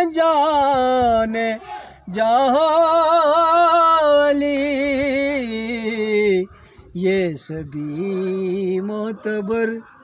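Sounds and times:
man singing: 0.0 - 10.0.

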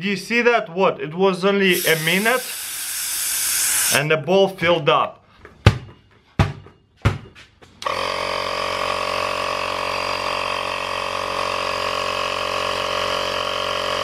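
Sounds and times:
air compressor running: 1.7 - 4.0, 7.8 - 14.0.

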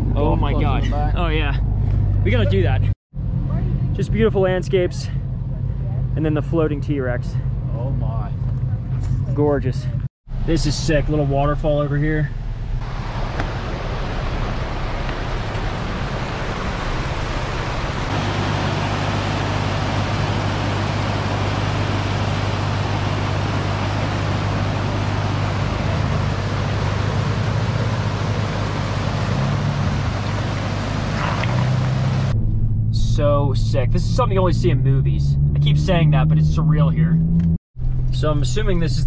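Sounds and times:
pickup truck engine running: 12.4 - 32.4
rushing creek water: 12.8 - 32.3.

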